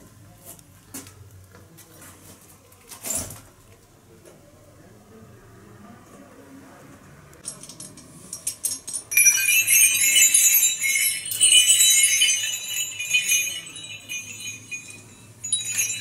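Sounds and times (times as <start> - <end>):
small brass bells jingling: 7.4 - 16.0.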